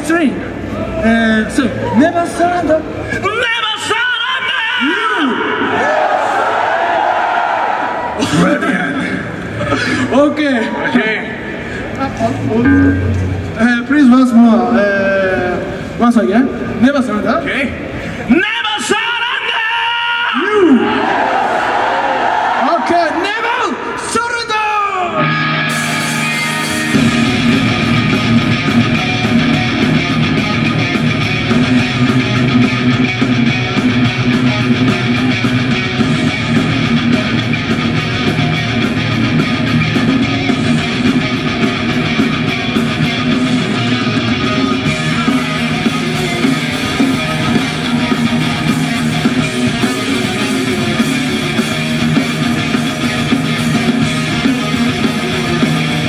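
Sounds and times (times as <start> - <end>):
bass guitar: 11.2 - 16.0, 25.1 - 56.0
distorted electric guitars: 11.2 - 18.2, 25.1 - 56.0
drums: 25.2 - 56.0.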